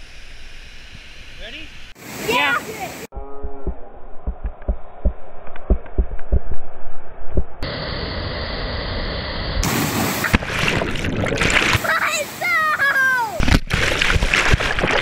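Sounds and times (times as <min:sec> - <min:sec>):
body plunging into water: 0:09.6 - 0:11.8, 0:13.4 - 0:15.0
rushing stream water: 0:09.7 - 0:15.0.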